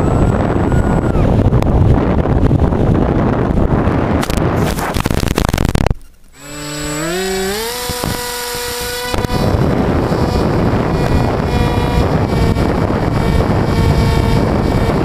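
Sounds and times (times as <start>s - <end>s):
wind rushing over microphone: 0.0s - 15.0s
electric motor whine: 6.4s - 15.0s.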